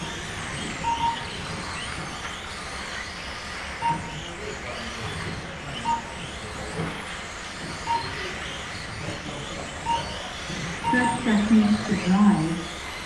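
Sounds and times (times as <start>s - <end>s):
small rc car motors buzzing: 0.0s - 13.0s
short electronic beep: 0.8s - 1.2s, 3.8s - 4.3s, 5.8s - 6.2s, 7.8s - 8.2s, 9.9s - 10.2s, 10.8s - 12.0s.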